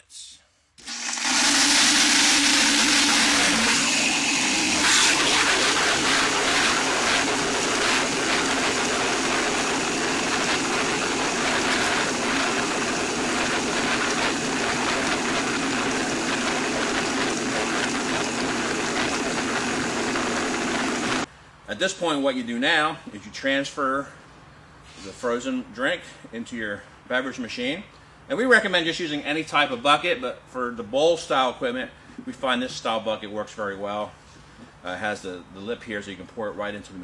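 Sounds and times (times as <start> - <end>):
blender motor whirring: 0.8 - 21.3
ice crackling in blender: 0.8 - 21.3.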